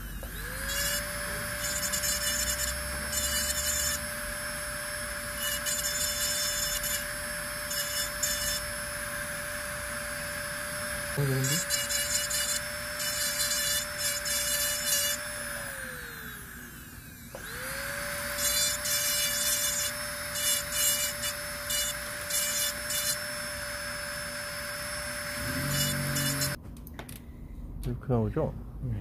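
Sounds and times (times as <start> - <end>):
dental handpiece whining: 0.0 - 26.6
bur scratching tooth: 25.4 - 26.6.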